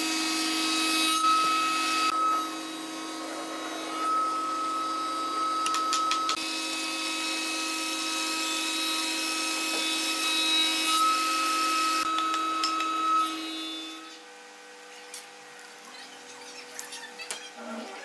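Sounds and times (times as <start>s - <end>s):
cutter shaping wood: 0.0s - 14.2s.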